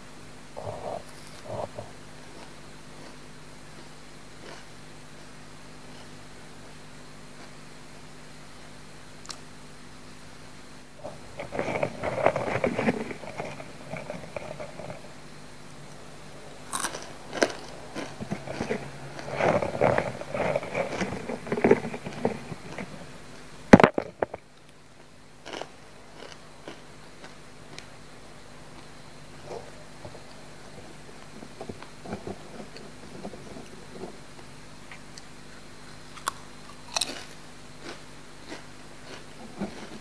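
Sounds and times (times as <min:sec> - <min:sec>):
crunchy snack chewing: 0:00.6 - 0:06.7, 0:11.0 - 0:15.2, 0:15.9 - 0:23.1, 0:23.8 - 0:27.9, 0:34.9 - 0:40.0.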